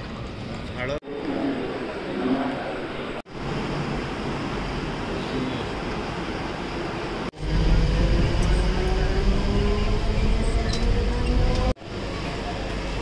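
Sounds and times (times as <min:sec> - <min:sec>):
train pulling into platform: 0:00.0 - 0:13.0
rumble inside moving train: 0:03.4 - 0:12.9
train whine rising in pitch: 0:07.4 - 0:11.7.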